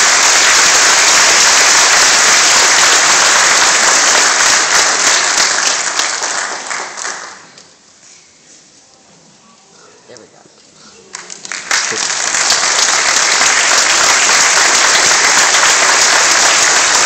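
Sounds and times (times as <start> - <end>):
audience applauding: 0.0 - 7.6, 11.1 - 17.0.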